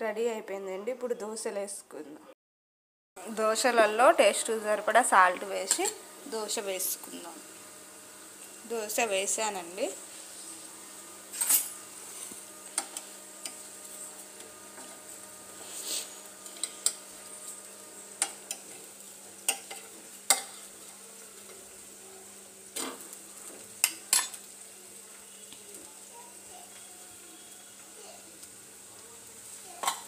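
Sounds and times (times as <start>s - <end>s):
batter sizzling on pan: 3.2s - 30.0s.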